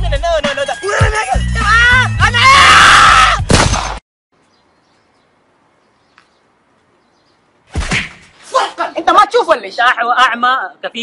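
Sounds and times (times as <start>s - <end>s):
hip-hop music with heavy bass: 0.0s - 2.5s
man screaming: 0.8s - 3.4s.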